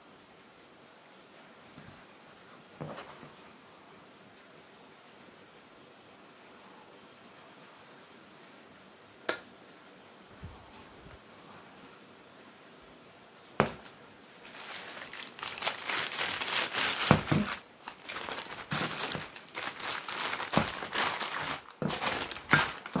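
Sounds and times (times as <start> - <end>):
plastic bags crinkling: 13.6 - 23.0.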